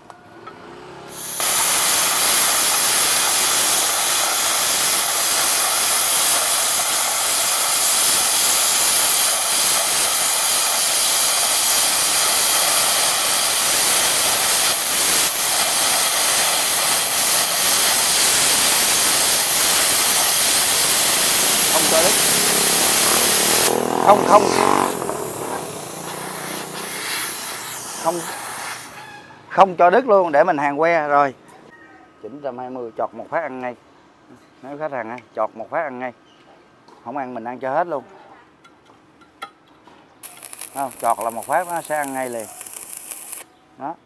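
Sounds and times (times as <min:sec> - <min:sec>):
plasma cutter hissing: 0:01.1 - 0:29.0, 0:40.2 - 0:43.5.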